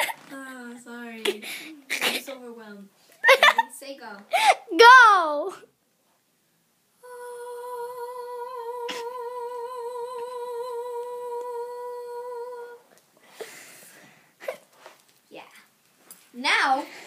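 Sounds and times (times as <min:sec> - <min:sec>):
girl singing high note: 0:07.0 - 0:12.9.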